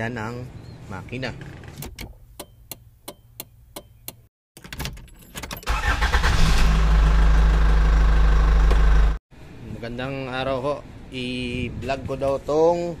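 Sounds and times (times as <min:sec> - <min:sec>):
car engine running: 0:05.8 - 0:09.2.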